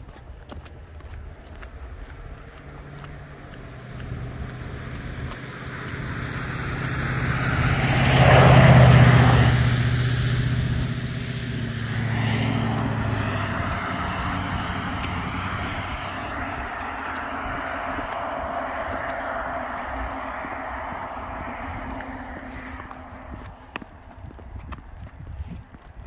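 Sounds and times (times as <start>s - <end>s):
car engine hum: 0.8s - 25.5s
tyres hissing on wet road: 3.8s - 23.7s.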